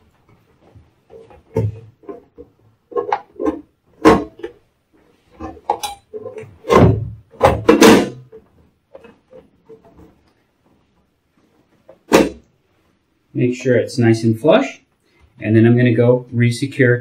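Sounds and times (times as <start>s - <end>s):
plastic cover knocking and scraping: 0.1s - 10.4s.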